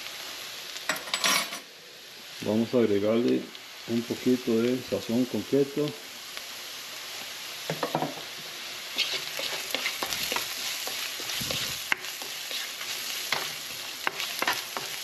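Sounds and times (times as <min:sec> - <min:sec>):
onions sizzling in oil: 0:00.0 - 0:01.0, 0:01.6 - 0:15.0
spoon scraping a pan: 0:08.9 - 0:15.0.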